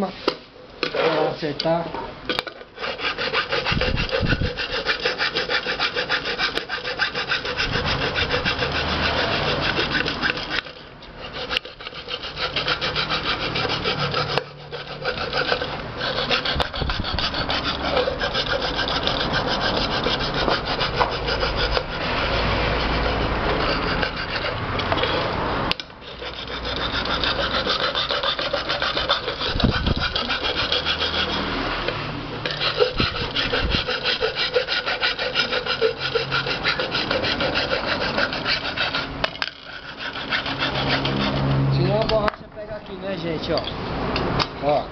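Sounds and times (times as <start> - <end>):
file rasping on metal: 2.8 - 42.3.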